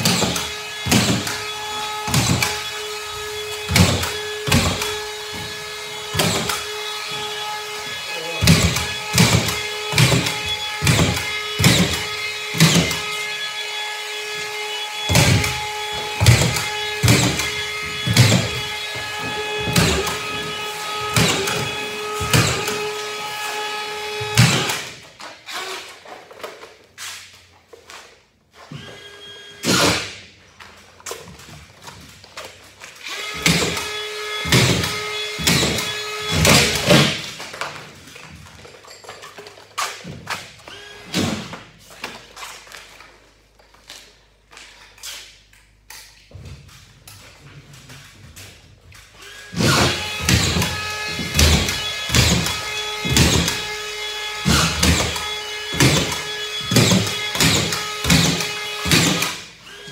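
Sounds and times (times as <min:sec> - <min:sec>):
screws knocking into drywall: 0:08.4 - 0:13.0, 0:15.1 - 0:20.5, 0:54.4 - 0:59.4
screw gun whining: 0:49.2 - 0:59.9.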